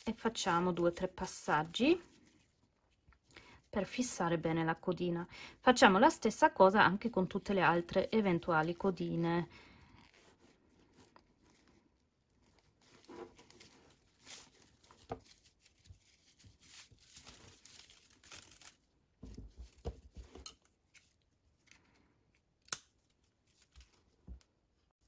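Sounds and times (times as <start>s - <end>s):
yarn rustling and scratching: 9.9s - 21.0s.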